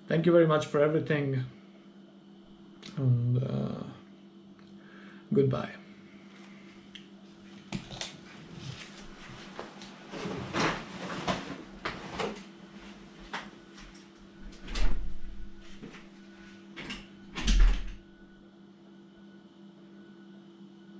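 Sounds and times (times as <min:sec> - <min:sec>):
clothing rustle: 0:08.2 - 0:14.0
heavy door thuds: 0:17.3 - 0:18.0.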